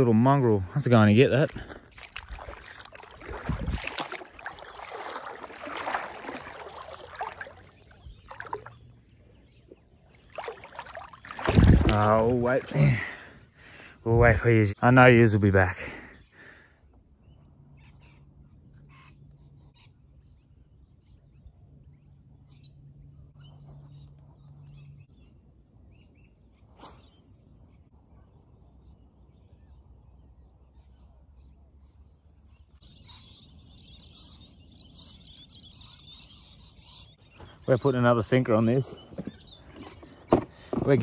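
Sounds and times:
chorus of small birds chirping: 0.1 - 14.4, 27.8 - 41.0
bird chirps: 2.0 - 12.0.

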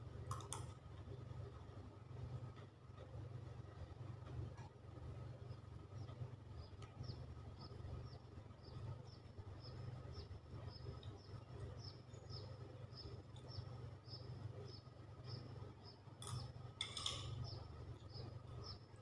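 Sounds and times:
faint low hum: 0.0 - 19.0
bird chirping: 5.5 - 19.0.

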